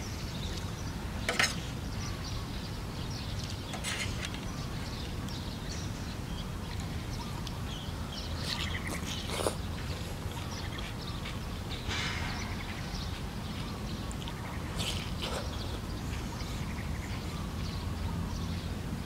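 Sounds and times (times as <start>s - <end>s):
small birds chirping: 0.0s - 19.0s
noodles slurped: 8.4s - 11.0s, 14.2s - 15.9s.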